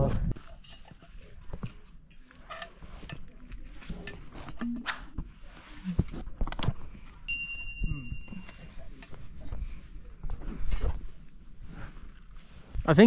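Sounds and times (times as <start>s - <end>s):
short high ringing chime: 7.3s - 8.8s.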